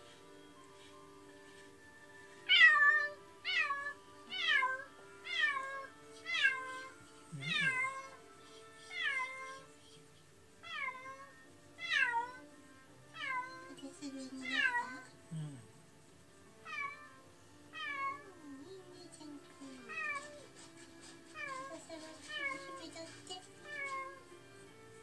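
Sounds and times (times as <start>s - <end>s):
soft background music: 0.0s - 25.0s
cat meowing: 2.5s - 8.2s, 8.9s - 9.7s, 10.6s - 12.5s, 13.1s - 13.7s, 14.4s - 15.1s, 16.6s - 18.4s, 19.8s - 20.6s.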